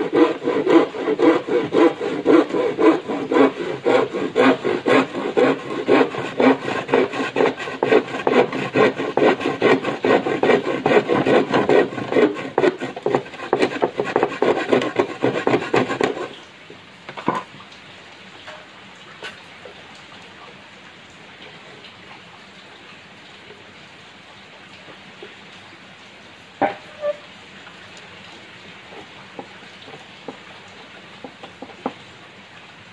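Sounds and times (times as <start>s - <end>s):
handsaw cutting plywood: 0.0s - 16.3s
faint hiss of rain: 12.1s - 32.9s.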